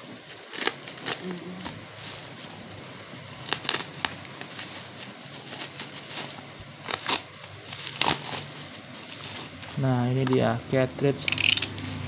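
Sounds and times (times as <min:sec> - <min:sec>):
plastic mailer crinkling: 0:00.1 - 0:10.5
scissors cutting plastic: 0:00.4 - 0:01.8, 0:05.5 - 0:08.4, 0:11.2 - 0:12.0.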